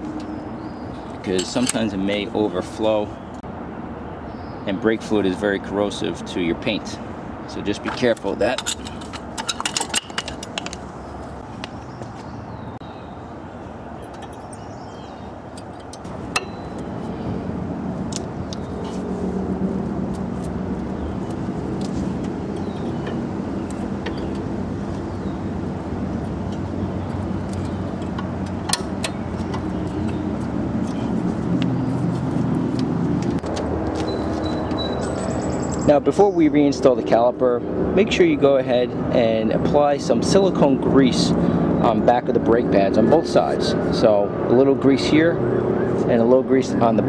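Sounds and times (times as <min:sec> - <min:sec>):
metallic clicks of brake parts: 0:01.0 - 0:01.9, 0:07.8 - 0:10.9, 0:15.5 - 0:16.9, 0:26.4 - 0:30.2.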